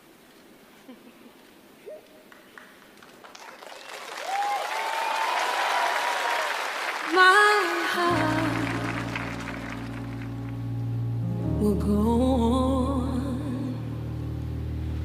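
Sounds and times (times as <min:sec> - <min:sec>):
audience applause and cheering: 0:02.2 - 0:10.8
whoops: 0:03.5 - 0:08.9
band playing low chord: 0:08.1 - 0:15.0.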